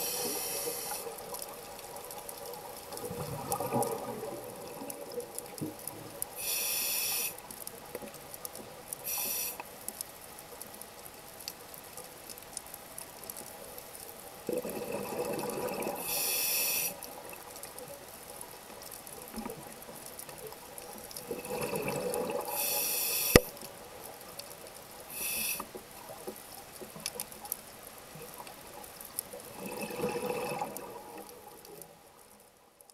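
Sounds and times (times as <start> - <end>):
diver breathing through regulator: 0.0 - 1.2, 6.4 - 7.4, 16.0 - 17.0, 22.4 - 23.5, 25.1 - 25.7.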